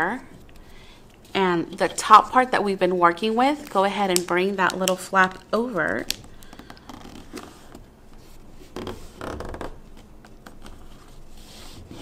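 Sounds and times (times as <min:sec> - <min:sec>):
paper rustling and creasing: 0:05.6 - 0:12.0.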